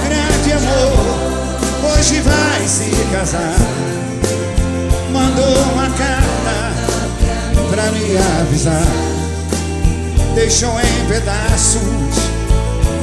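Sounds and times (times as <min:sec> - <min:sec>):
audience singing along: 0:00.0 - 0:09.8
live band with singing: 0:00.0 - 0:13.0
steady drum beat: 0:00.0 - 0:13.0.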